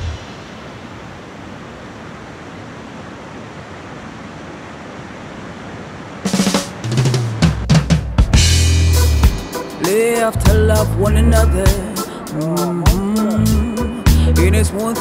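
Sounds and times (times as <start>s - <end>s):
music with drum kit: 6.3s - 14.9s.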